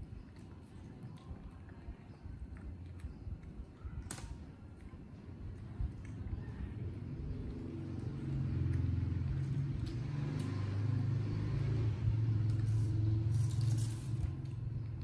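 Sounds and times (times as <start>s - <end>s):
low engine rumble: 4.6s - 15.0s.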